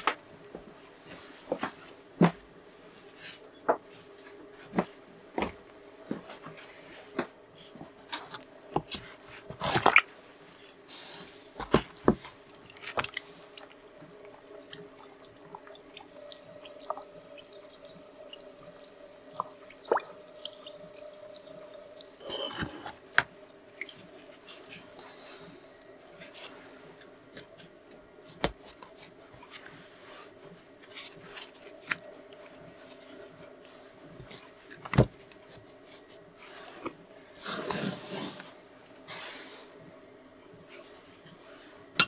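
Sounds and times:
water sloshing and dripping: 9.5 - 26.6
fizzing hiss of air bubbles: 9.9 - 22.2.

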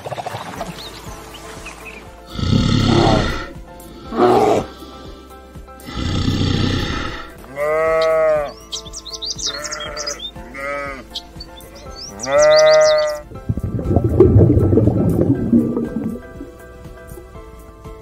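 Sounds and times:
sheep bleating: 5.9 - 8.6, 9.3 - 13.2.

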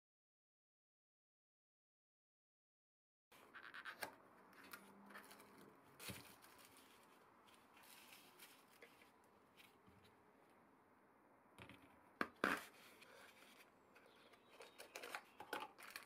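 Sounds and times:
plastic wrapping rustling: 4.6 - 9.8, 13.3 - 16.0.

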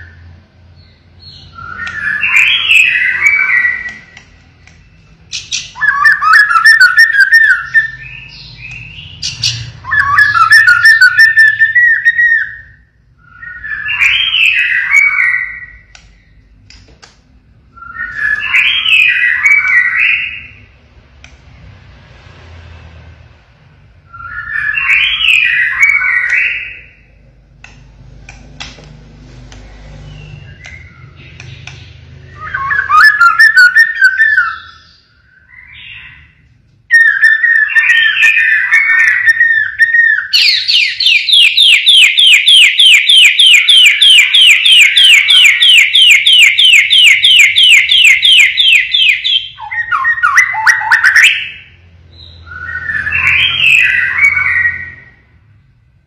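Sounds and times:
bird rapid repeated notes: 0.9 - 12.6, 36.9 - 51.7
shama bird singing whistled phrases: 4.8 - 15.9, 32.2 - 36.2, 36.9 - 44.3, 47.6 - 51.6.

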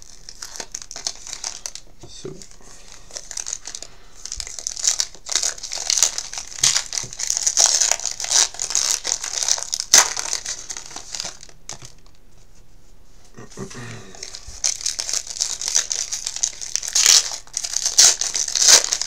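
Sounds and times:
sharp foil crackle: 0.0 - 1.8, 2.4 - 12.2, 14.2 - 19.0
foil wrapper crinkling: 0.0 - 12.2, 14.1 - 19.0.

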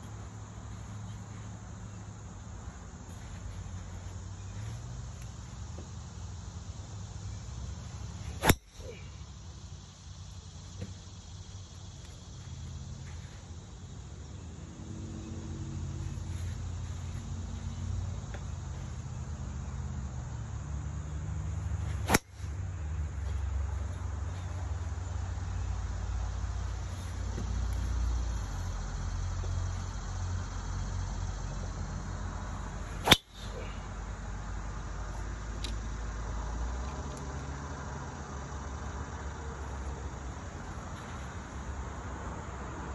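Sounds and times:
golf driver striking ball: 8.4 - 8.9, 22.1 - 22.3, 33.0 - 33.5.

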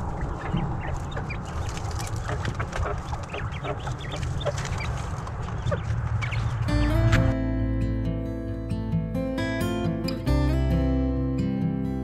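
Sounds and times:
poultry clucking and chirping: 0.0 - 6.7
steady low rumble: 0.0 - 8.5
acoustic guitar music: 6.6 - 12.0.

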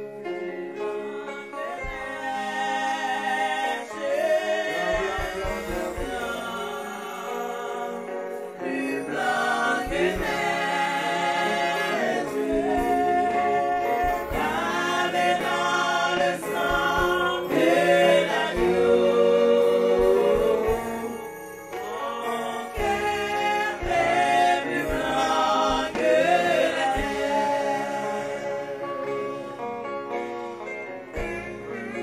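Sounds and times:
choir singing gospel: 0.0 - 32.0.

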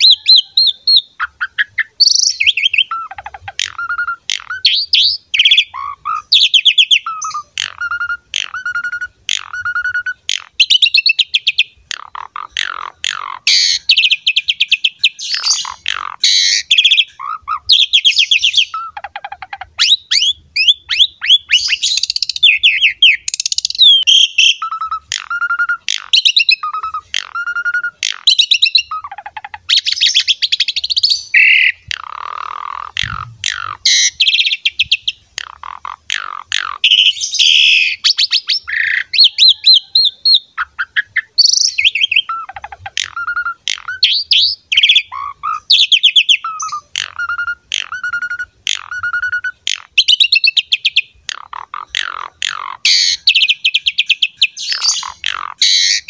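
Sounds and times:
harsh rasping bird call: 0.0 - 56.0
starling singing: 0.0 - 56.0.

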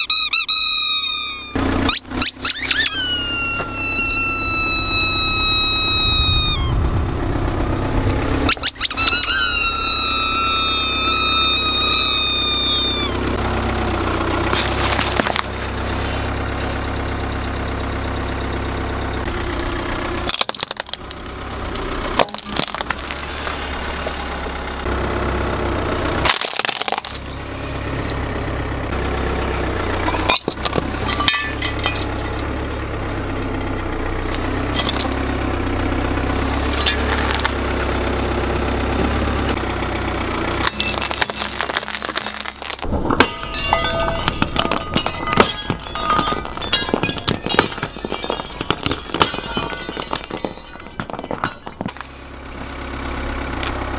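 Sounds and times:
rubber squeaks: 0.0 - 6.8, 8.5 - 13.2
car engine humming: 0.0 - 43.2, 44.2 - 53.9
glass breaking: 8.5 - 12.9, 20.3 - 24.2, 26.2 - 27.5, 30.0 - 32.5, 34.8 - 35.2, 36.7 - 37.5, 40.6 - 52.5.

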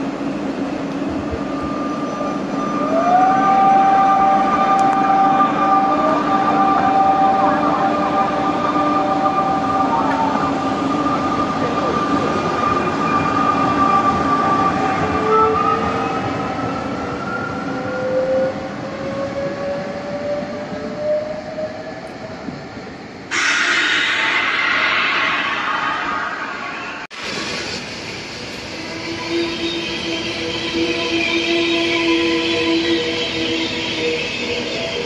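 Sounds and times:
electric train motors whining: 0.8 - 16.0.

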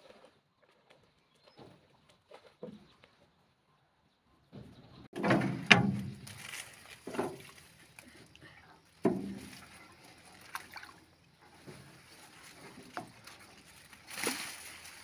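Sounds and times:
pole knocking and splashing: 5.2 - 7.6, 9.0 - 11.0.

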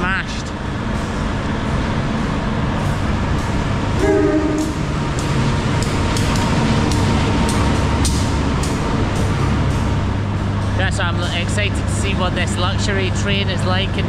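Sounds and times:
train rumbling past: 0.0 - 14.0
wheels clicking on rails: 0.3 - 14.0
train horn blast: 4.0 - 4.9.

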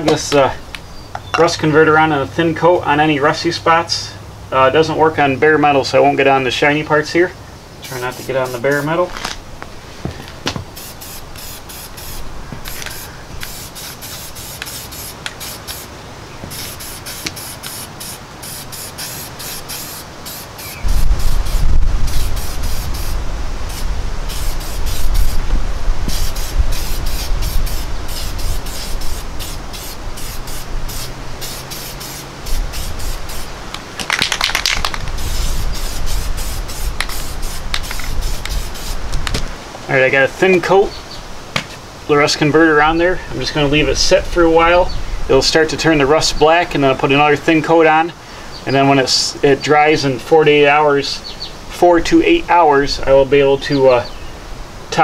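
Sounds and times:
aerosol can spraying: 10.7 - 25.4, 26.1 - 33.5, 34.1 - 39.4.

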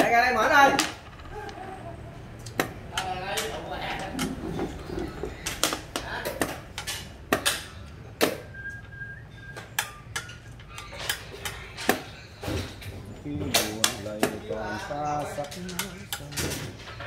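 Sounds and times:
game pieces clacking on wooden board: 0.0 - 1.8.

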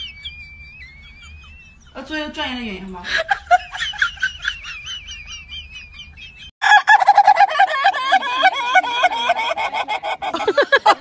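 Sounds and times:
rooster calling: 6.6 - 10.6.

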